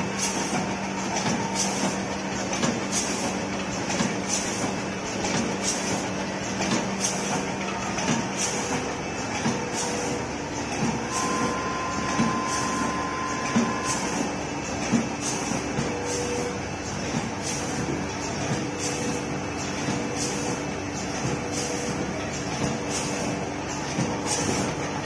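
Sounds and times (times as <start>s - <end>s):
packing machine running: 0.0s - 25.0s
short bursts of machine sound: 11.0s - 14.4s.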